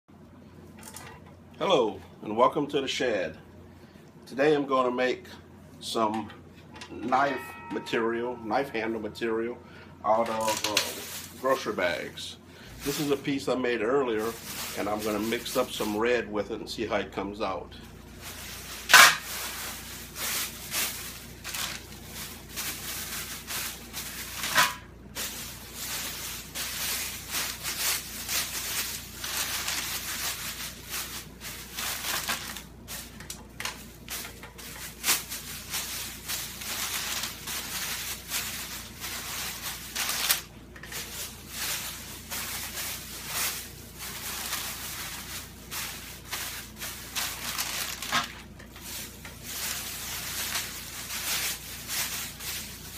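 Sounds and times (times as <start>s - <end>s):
plastic bags crinkling: 10.1s - 13.4s, 14.1s - 16.1s, 18.0s - 52.9s.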